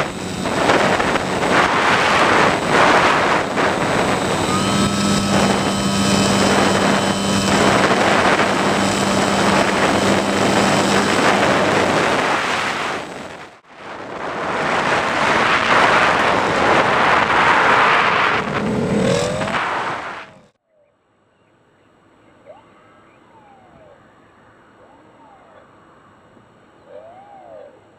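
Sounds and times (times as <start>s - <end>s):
electric motor and propeller: 0.0s - 20.6s
rushing airflow: 0.0s - 20.6s.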